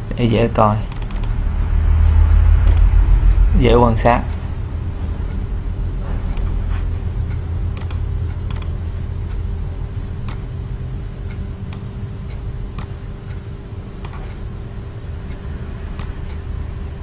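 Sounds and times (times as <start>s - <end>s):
steady low hum: 0.0s - 17.0s
computer mouse clicking: 0.9s - 1.4s, 2.6s - 2.9s, 7.8s - 8.8s, 14.0s - 14.4s, 16.0s - 16.2s.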